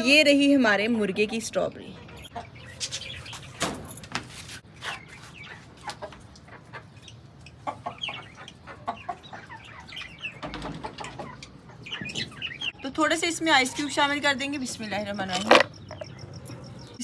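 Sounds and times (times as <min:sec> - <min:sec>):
chickens clucking: 0:00.9 - 0:03.5, 0:04.7 - 0:12.8.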